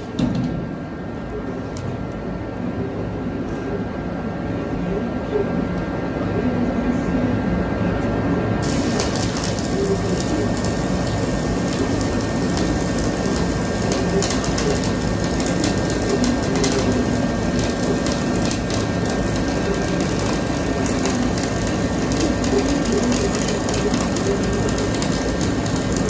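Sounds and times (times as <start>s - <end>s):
welding arc crackling: 8.6s - 26.0s.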